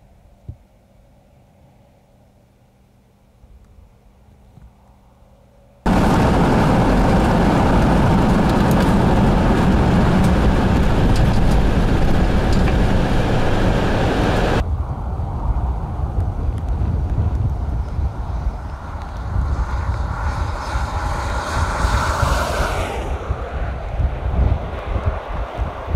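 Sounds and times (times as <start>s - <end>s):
road and tyre noise in car: 5.8s - 25.9s
raindrops ticking on windshield: 5.9s - 14.6s
wind rumble on microphone: 5.9s - 25.9s.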